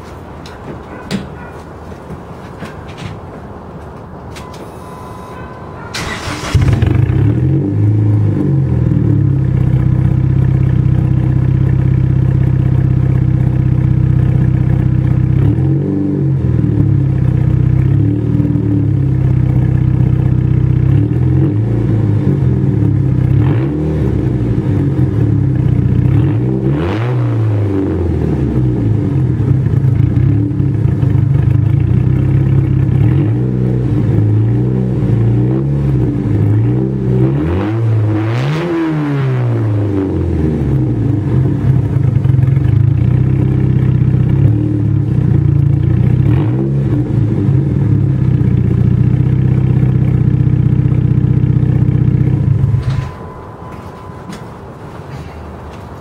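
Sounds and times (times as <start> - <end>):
exhaust revving with throttle blips: 5.0 - 53.2
car engine idling: 5.4 - 15.6, 16.4 - 23.4, 24.1 - 26.3, 28.6 - 33.2, 40.1 - 46.3, 47.1 - 56.0.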